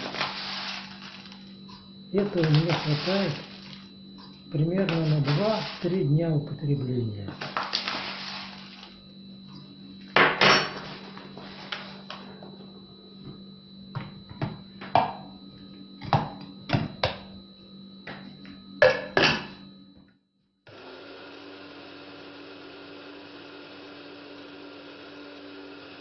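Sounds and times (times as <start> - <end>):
electric coffee grinder whirring: 0.0 - 6.0, 7.4 - 9.1, 20.7 - 26.0.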